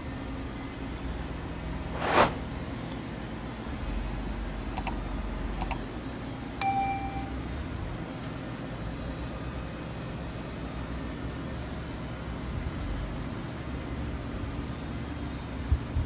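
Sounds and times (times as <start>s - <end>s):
whoosh: 1.8s - 2.5s
bell-like ding: 6.6s - 7.5s.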